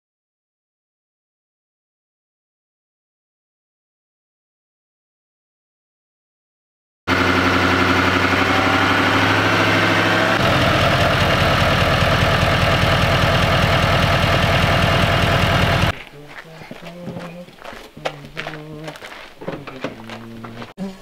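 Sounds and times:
diesel engine idling: 0:07.1 - 0:16.0.

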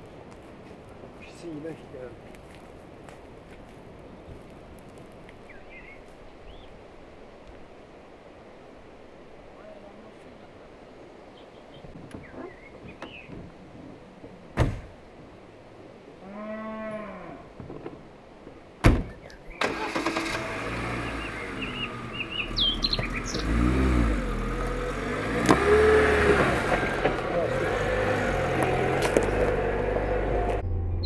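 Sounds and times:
birds chirping: 0:05.4 - 0:06.8, 0:11.0 - 0:13.5, 0:19.0 - 0:31.0
car door slamming: 0:14.6 - 0:15.0, 0:18.8 - 0:19.2
cow mooing: 0:16.2 - 0:17.5
car engine starting and running: 0:19.5 - 0:31.0.

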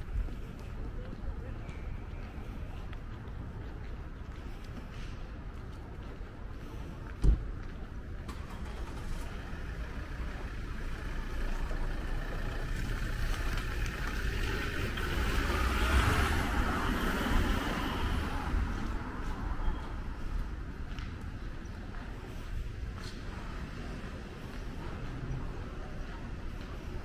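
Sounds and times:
car passing: 0:08.3 - 0:27.0.

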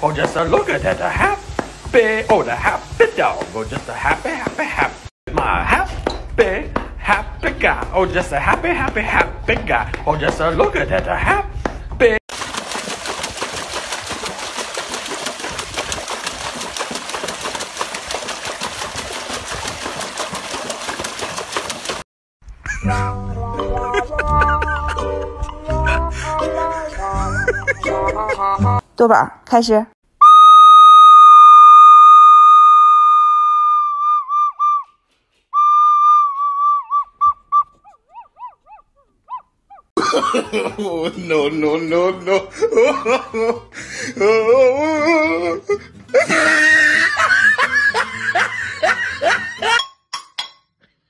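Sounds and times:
dog splashing water in tub: 0:12.3 - 0:22.1.

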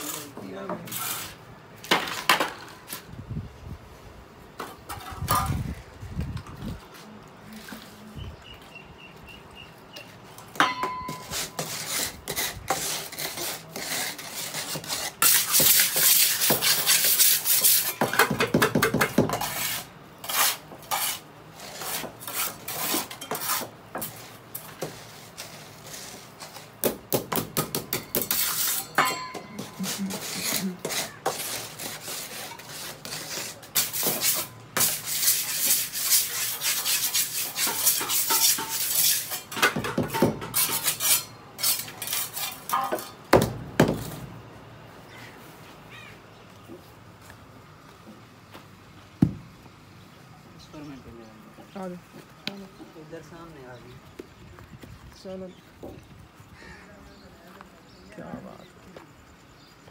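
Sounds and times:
trowel scraping wet cement: 0:00.0 - 0:03.0, 0:10.8 - 0:43.2
trowel clinking on metal: 0:10.6 - 0:11.9, 0:27.8 - 0:31.0, 0:33.8 - 0:43.2.

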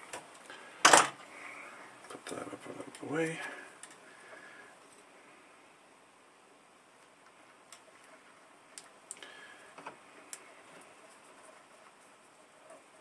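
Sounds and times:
faint sharp clicks: 0:08.7 - 0:10.9.

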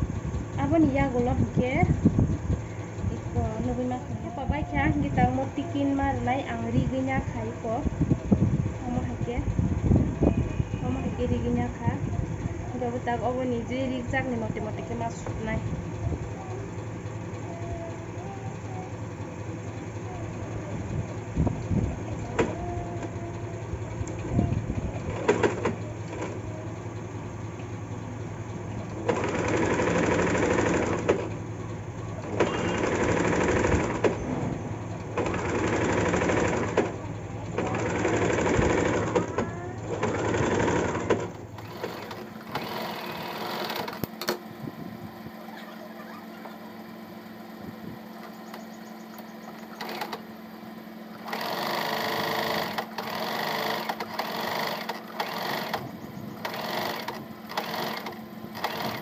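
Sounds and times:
steady low hum: 0:00.0 - 0:59.0
sewing machine stitching: 0:25.0 - 0:26.5, 0:28.9 - 0:31.4, 0:32.2 - 0:44.4, 0:49.6 - 0:50.3, 0:51.1 - 0:59.0
clicks: 0:43.7 - 0:44.5.

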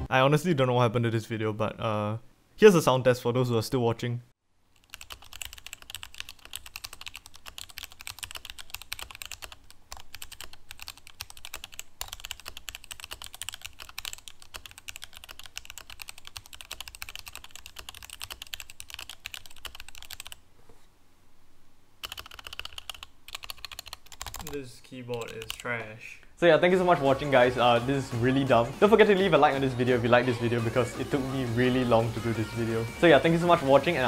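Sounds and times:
fast typing on mechanical keyboard: 0:04.8 - 0:20.4, 0:22.0 - 0:24.5, 0:25.1 - 0:25.6.

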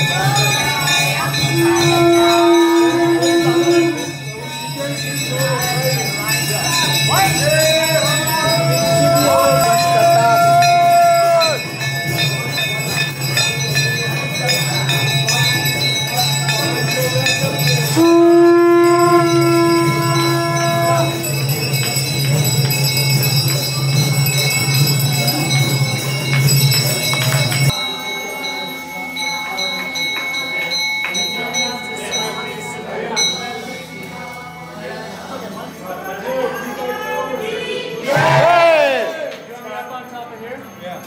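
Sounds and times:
bells ringing: 0:00.0 - 0:41.0
crowd voices: 0:00.0 - 0:41.0
long held note: 0:01.5 - 0:04.2, 0:18.0 - 0:21.2.

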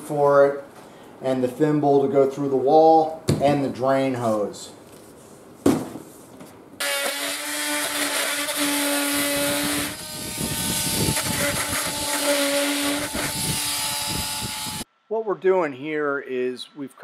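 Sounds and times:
power tool motor whining: 0:06.8 - 0:14.8.

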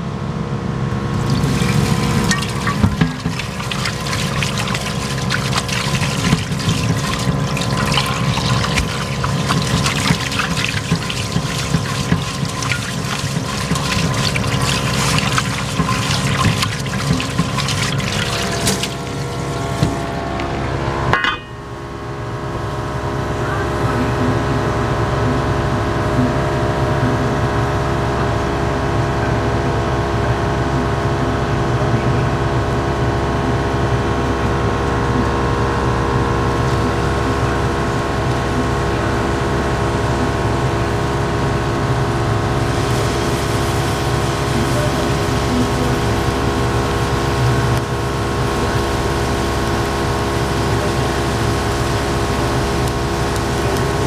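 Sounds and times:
gas burner rumble and hum: 0:00.0 - 0:54.0
tap water splashing into pan: 0:01.2 - 0:20.6.

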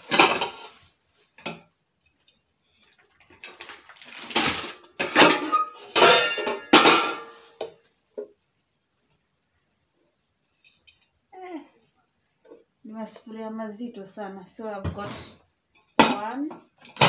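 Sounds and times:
pots and lids clanking: 0:00.0 - 0:08.3.

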